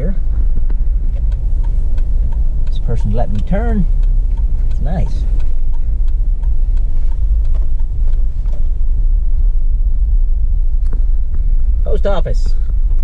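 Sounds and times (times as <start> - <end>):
car interior road rumble: 0.0 - 13.0
faint ticks: 0.6 - 8.9.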